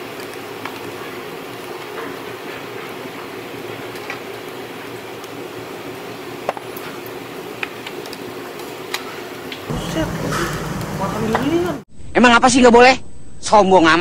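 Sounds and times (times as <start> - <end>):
ventilation hum: 9.7 - 11.8.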